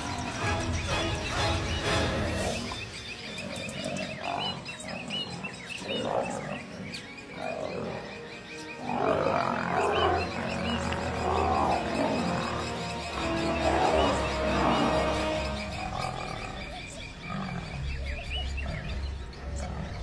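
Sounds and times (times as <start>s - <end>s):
lions snarling and growling: 1.2s - 20.0s.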